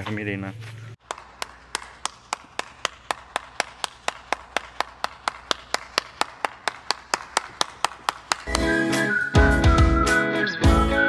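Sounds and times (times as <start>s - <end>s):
person clapping hands: 1.0s - 8.8s.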